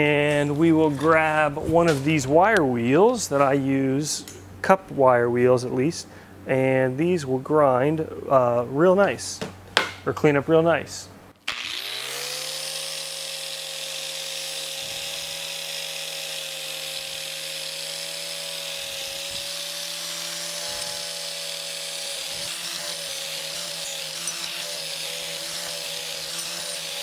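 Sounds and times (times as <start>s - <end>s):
angle grinder wire wheel whining: 11.4s - 27.0s.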